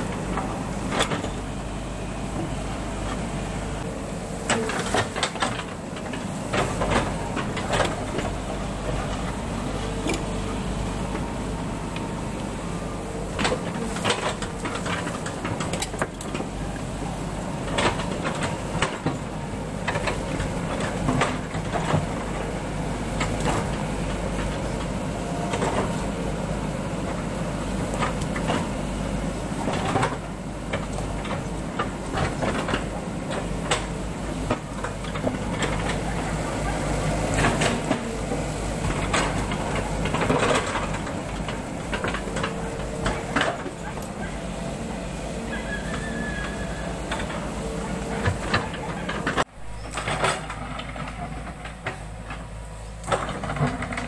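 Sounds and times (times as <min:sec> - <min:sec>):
diesel engine running: 0:00.0 - 0:54.0.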